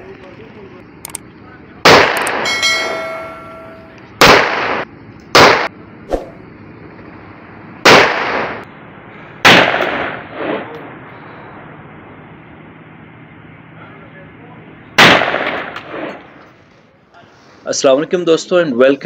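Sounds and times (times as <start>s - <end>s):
pistol shots: 1.8s - 2.5s, 4.2s - 5.7s, 7.8s - 8.6s, 9.4s - 10.6s, 15.0s - 16.3s.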